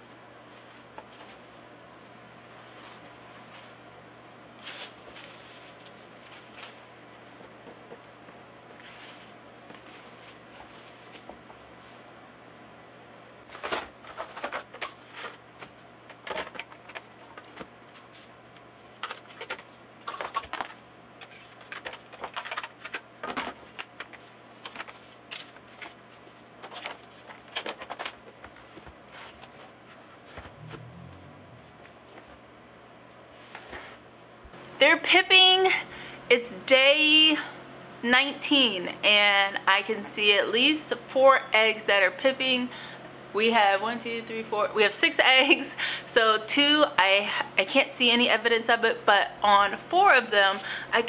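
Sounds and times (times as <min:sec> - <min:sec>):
rustling and crinkling: 0:00.4 - 0:03.8, 0:04.6 - 0:12.2, 0:13.4 - 0:32.4, 0:33.1 - 0:34.4
steady low hum: 0:28.4 - 0:51.0.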